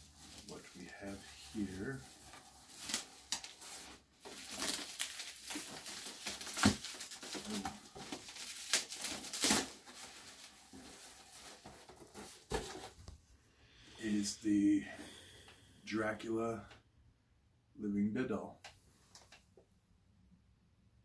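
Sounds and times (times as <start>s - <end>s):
bubble wrap rustling and crackling: 0.0s - 13.1s.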